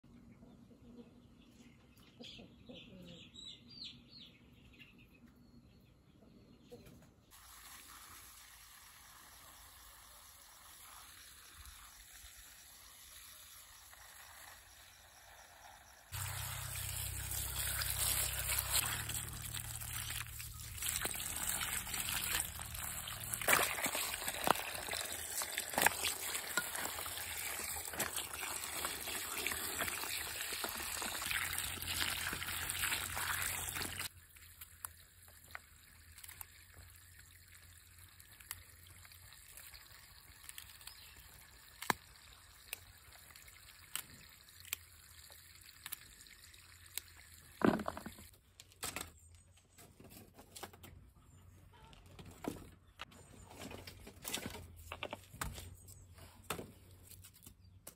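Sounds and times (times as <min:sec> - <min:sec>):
hose water splashing into basin: 0:07.3 - 0:48.3.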